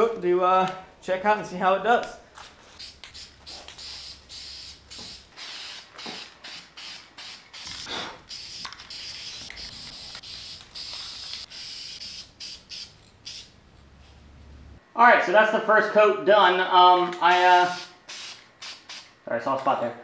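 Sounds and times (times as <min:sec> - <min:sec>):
spray can hissing bursts: 0:02.7 - 0:13.6, 0:17.3 - 0:19.1.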